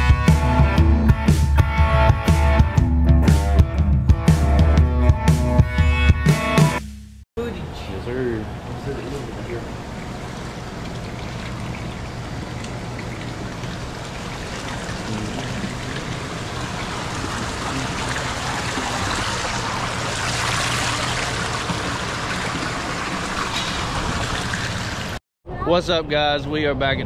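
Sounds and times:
water running and splashing: 0:08.7 - 0:25.2.

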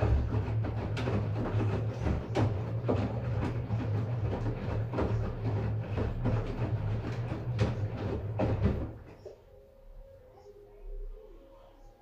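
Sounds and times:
laundry thudding in drum: 0:00.0 - 0:09.2
washing machine motor hum: 0:00.0 - 0:12.0.

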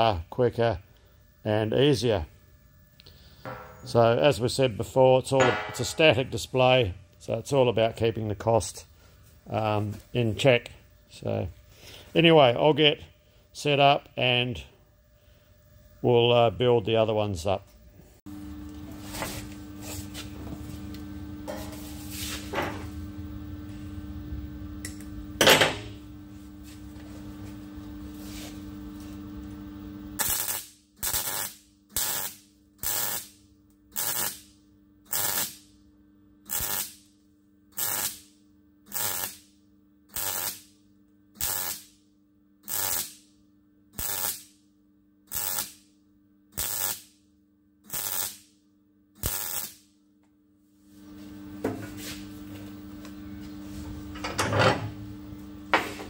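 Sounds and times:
steady hum: 0:00.0 - 0:56.0
sharp loud knock: 0:05.4 - 0:06.1
welder arc crackling bursts: 0:29.0 - 0:35.8, 0:36.4 - 0:40.8, 0:41.4 - 0:42.0, 0:42.6 - 0:43.4, 0:44.0 - 0:44.6, 0:45.3 - 0:45.9, 0:46.5 - 0:47.2, 0:47.9 - 0:48.6, 0:49.2 - 0:49.9.

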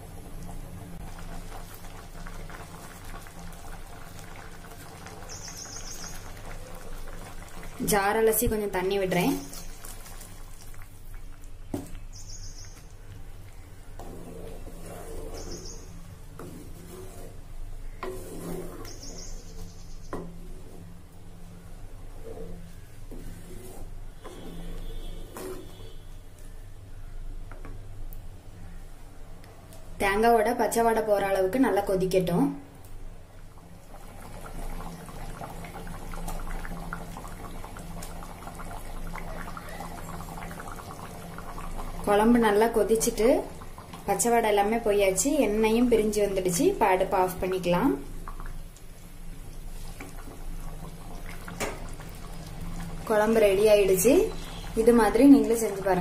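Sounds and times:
curry bubbling and popping: 0:00.0 - 0:26.1, 0:32.8 - 0:56.0
bird chirping: 0:05.2 - 0:06.3, 0:12.0 - 0:12.9, 0:15.4 - 0:16.0, 0:18.8 - 0:20.1
wooden spatula stirring thick curry: 0:13.9 - 0:26.1.

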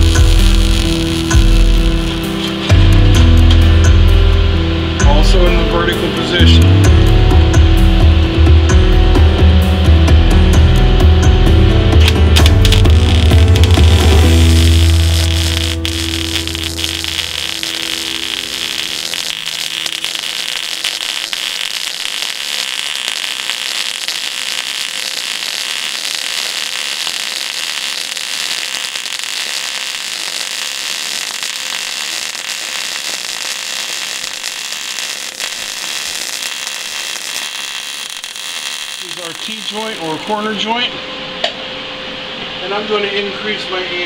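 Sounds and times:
welding arc crackling: 0:00.0 - 0:04.0, 0:12.0 - 0:40.7.

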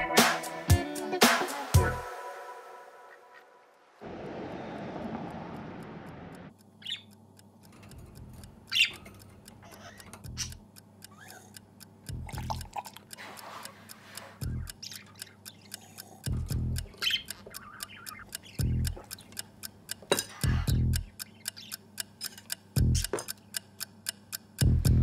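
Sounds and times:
steady low hum: 0:04.0 - 0:13.2, 0:13.8 - 0:25.0
birds chirping: 0:04.1 - 0:07.2, 0:08.6 - 0:11.4, 0:14.5 - 0:19.5, 0:20.3 - 0:22.0
soft low thumps: 0:16.3 - 0:16.9, 0:18.6 - 0:19.0, 0:20.4 - 0:21.1, 0:22.8 - 0:23.1, 0:24.6 - 0:25.0.

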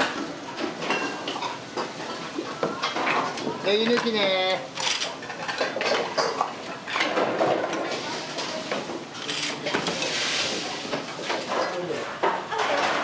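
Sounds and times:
pots and pans clattering: 0:00.0 - 0:13.0.

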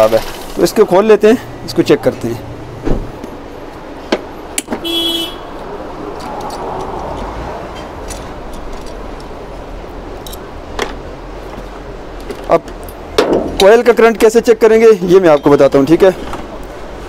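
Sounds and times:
car horn toot: 0:04.8 - 0:05.5
socket wrench clicking: 0:10.2 - 0:10.5.

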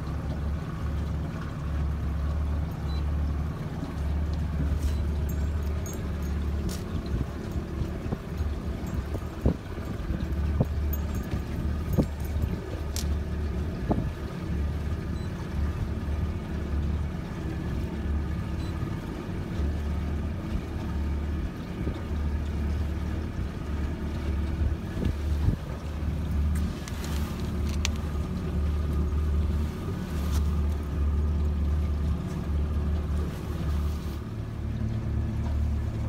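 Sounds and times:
boat engine and hull rumble: 0:00.0 - 0:36.0
wind buffeting microphone: 0:06.9 - 0:14.3, 0:24.6 - 0:26.2.

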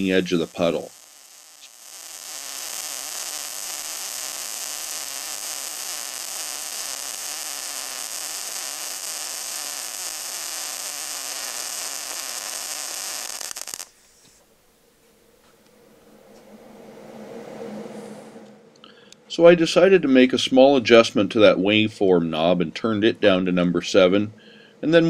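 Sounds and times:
welding arc crackling hiss: 0:00.0 - 0:14.5.

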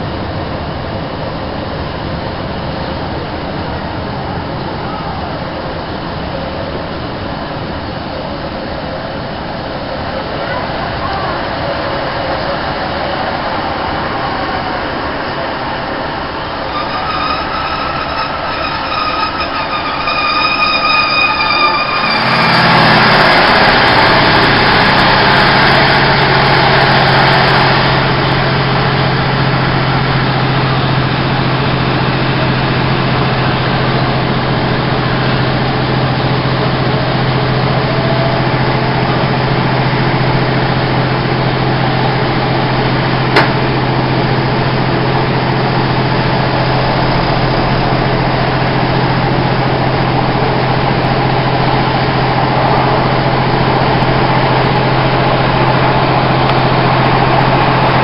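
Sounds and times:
diesel engine low drone: 0:00.0 - 0:58.0
train wheel and running noise: 0:00.0 - 0:58.0
high whine: 0:11.5 - 0:58.0.

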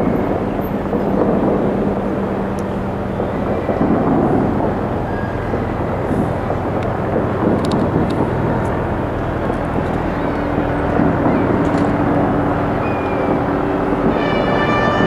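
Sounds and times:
low rumbling city noise: 0:00.0 - 0:15.0
low steady hum: 0:00.0 - 0:15.0.

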